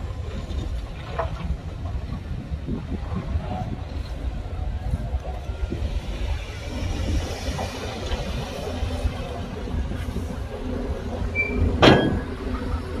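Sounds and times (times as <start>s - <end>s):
diesel engine rumbling: 0.0s - 13.0s
loud metallic clank: 11.8s - 12.4s.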